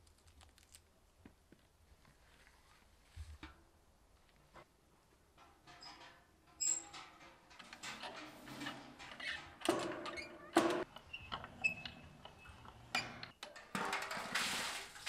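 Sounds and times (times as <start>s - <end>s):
thin squeak: 5.8s - 7.0s, 8.0s - 13.3s.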